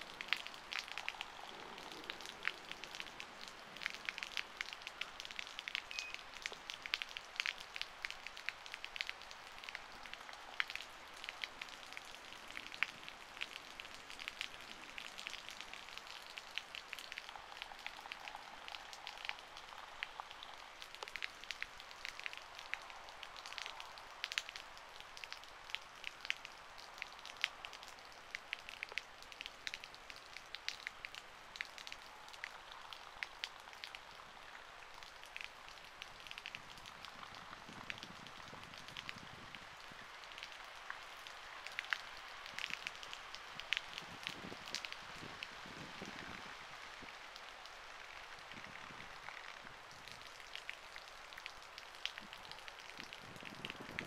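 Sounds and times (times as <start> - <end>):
rain pattering: 0.0 - 54.0
raindrops ticking near microphone: 0.0 - 54.0.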